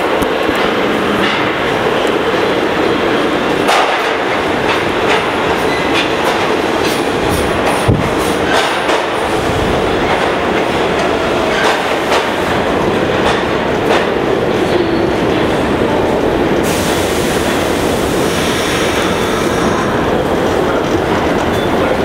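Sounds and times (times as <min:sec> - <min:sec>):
wheels clacking over rail joints: 0:00.0 - 0:15.5
subway train rumble: 0:00.0 - 0:22.0.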